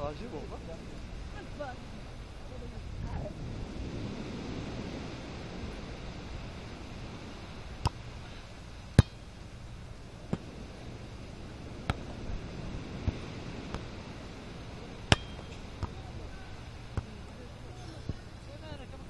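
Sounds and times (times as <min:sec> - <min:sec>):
low background rumble: 0:00.0 - 0:19.0
volleyball being struck by hands: 0:09.0 - 0:09.3, 0:15.1 - 0:16.0.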